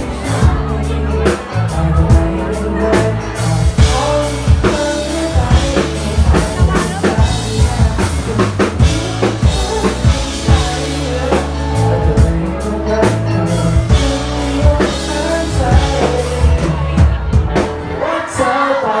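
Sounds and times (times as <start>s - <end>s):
drum kit beat: 0.0s - 18.2s
bass notes: 0.0s - 18.7s
live band music: 0.0s - 19.0s.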